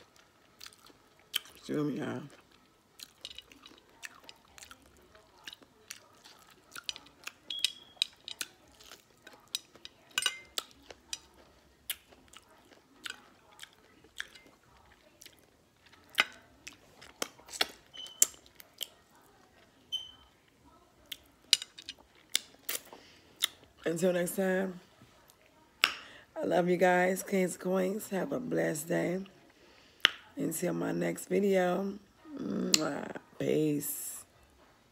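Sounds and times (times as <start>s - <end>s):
person chewing food: 0.0s - 19.8s, 21.0s - 23.8s.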